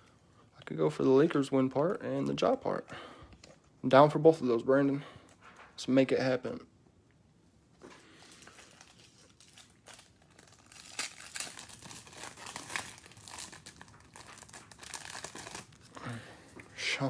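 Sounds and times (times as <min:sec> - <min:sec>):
cellophane wrapper crinkling: 0:07.8 - 0:16.1.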